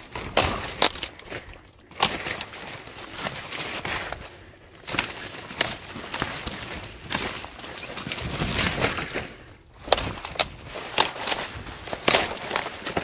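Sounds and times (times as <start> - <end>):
kale stems snapping: 0.0 - 13.0
leaves rustling: 0.0 - 13.0.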